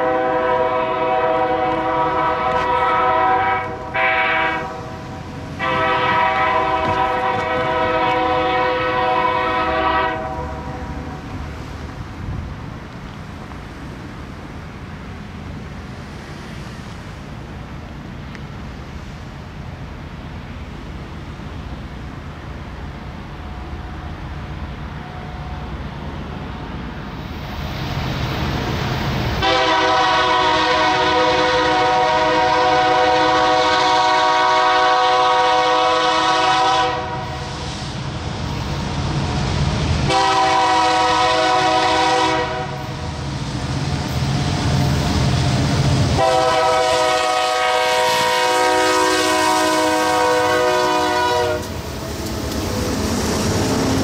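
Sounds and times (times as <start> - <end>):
locomotive air horn: 0.0 - 11.2, 29.4 - 37.6, 40.1 - 43.0, 46.2 - 51.8
diesel engines rumbling: 0.0 - 54.0
train wheels on rails: 0.0 - 54.0.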